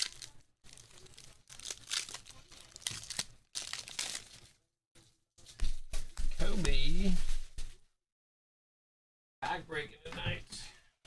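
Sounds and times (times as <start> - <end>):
foil wrapper crinkling and tearing: 0.0 - 4.6.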